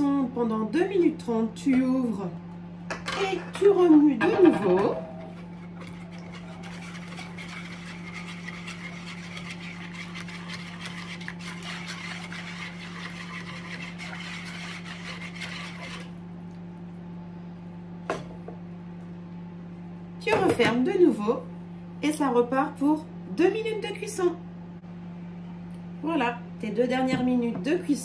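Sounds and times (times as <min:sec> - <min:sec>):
steady low hum: 0:00.0 - 0:28.0
whisk scraping plastic bowl: 0:04.7 - 0:16.2.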